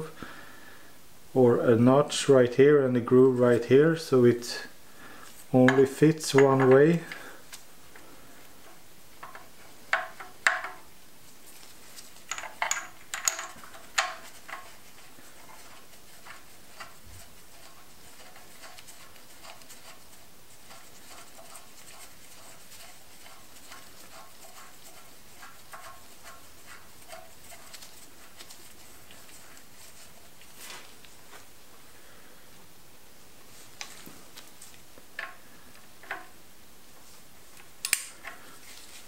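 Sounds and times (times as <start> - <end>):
metal parts clinking: 12.3 - 13.8.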